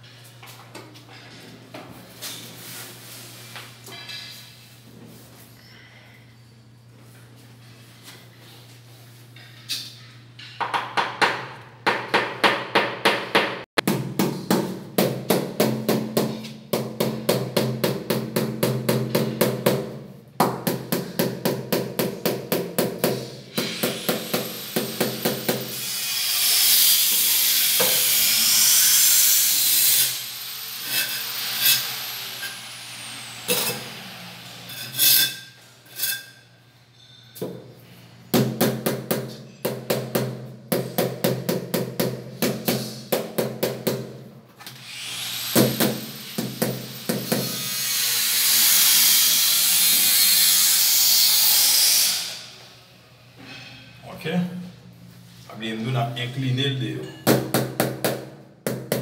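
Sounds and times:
hiss: 0:47.4 - 0:52.5.

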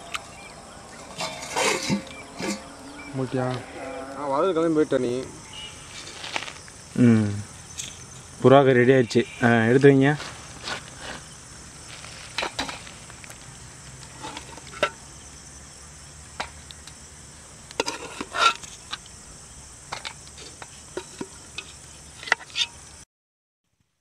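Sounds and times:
crickets chirring: 0:00.0 - 0:23.0
metal spoon scraping pot: 0:01.0 - 0:03.1, 0:14.1 - 0:15.0, 0:17.8 - 0:19.0, 0:19.9 - 0:22.8.

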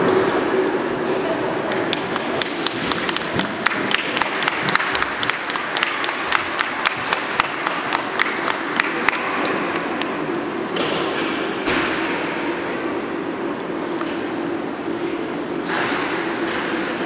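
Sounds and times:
small audience clapping: 0:01.7 - 0:10.2.

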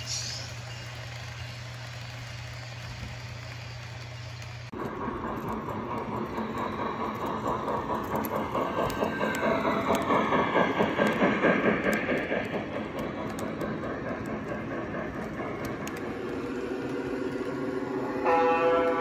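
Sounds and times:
model passenger cars rolling: 0:00.0 - 0:17.4
model steam locomotive clatter: 0:00.0 - 0:19.0.

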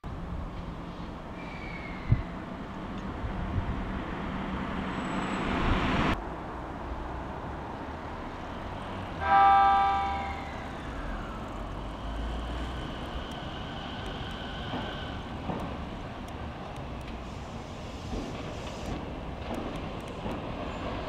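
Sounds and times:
electric train horn chord: 0:09.2 - 0:10.5.

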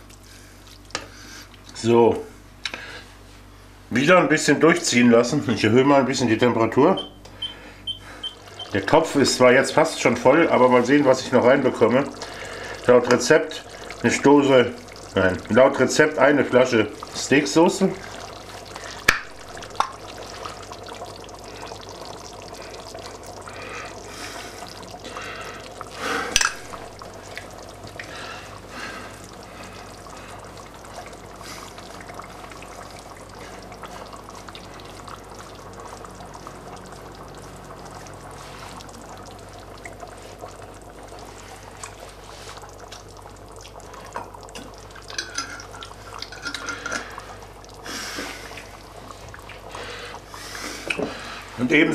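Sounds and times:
sauce pouring and dripping: 0:10.0 - 0:51.6.

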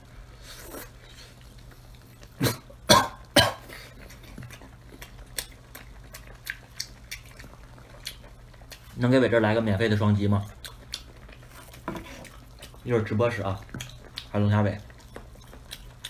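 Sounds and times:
man eating with mouth noises: 0:00.2 - 0:16.0
wet chewing clicks: 0:04.0 - 0:09.7, 0:10.3 - 0:16.0.

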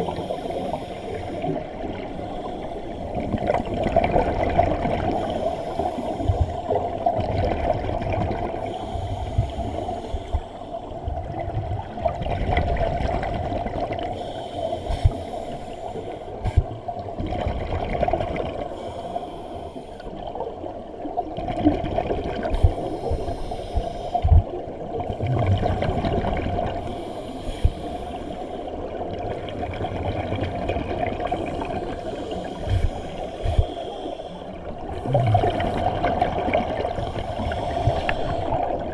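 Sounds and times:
exhaled bubbles gurgling underwater: 0:00.0 - 0:38.9
muffled hum: 0:32.4 - 0:36.1.

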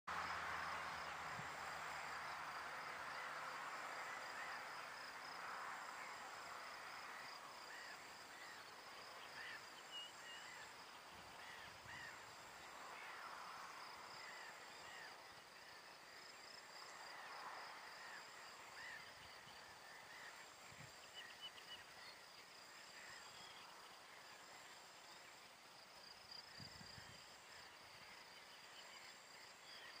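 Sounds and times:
insects chirring: 0:00.1 - 0:30.0.

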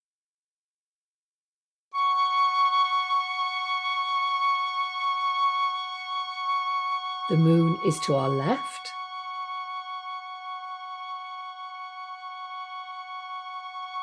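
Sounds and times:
held piccolo tone: 0:02.0 - 0:10.3.

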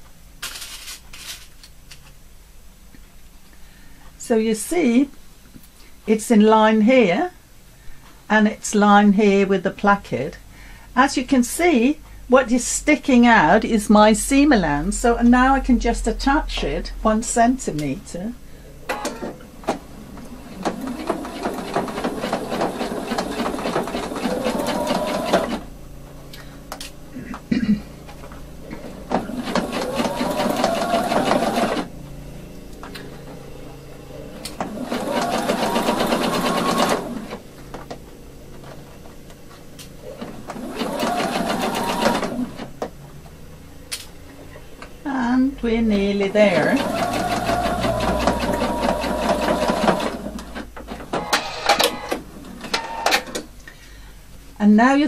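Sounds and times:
sewing machine stitching: 0:20.2 - 0:25.7, 0:29.0 - 0:31.9, 0:34.4 - 0:37.4, 0:40.2 - 0:42.7, 0:46.4 - 0:52.2.

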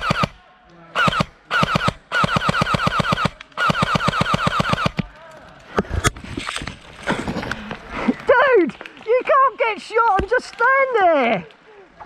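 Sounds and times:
airsoft gun automatic bursts: 0:00.0 - 0:00.4, 0:01.0 - 0:05.0.

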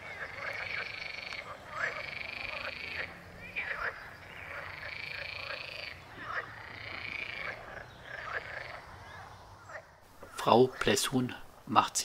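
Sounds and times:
short frog calls: 0:00.0 - 0:11.0
frogs trilling chorus: 0:00.0 - 0:11.2.

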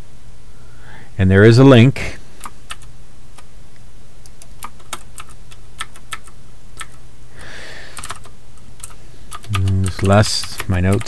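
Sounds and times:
steady low hum: 0:00.0 - 0:11.0
keyboard keystrokes clicking: 0:04.2 - 0:07.0, 0:08.0 - 0:11.0.

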